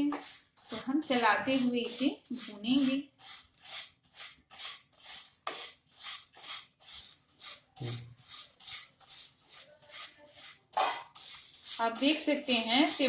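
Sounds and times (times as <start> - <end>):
spatula scraping noodles in a pan: 0.0 - 13.0.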